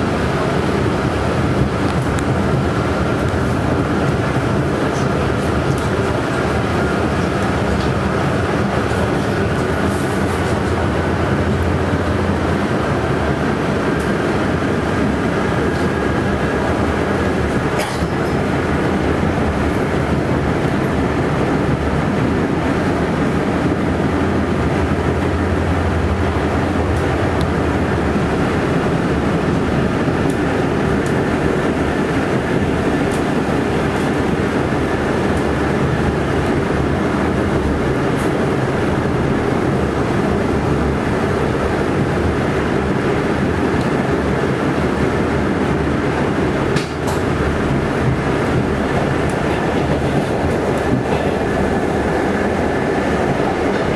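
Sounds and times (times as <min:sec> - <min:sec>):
subway wheels rumbling on rails: 0:00.0 - 0:53.9.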